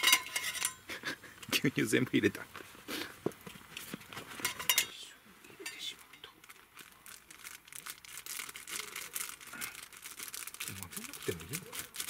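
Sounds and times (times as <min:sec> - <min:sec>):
metal spoon clinking in pot: 0:00.0 - 0:00.8, 0:04.5 - 0:04.9.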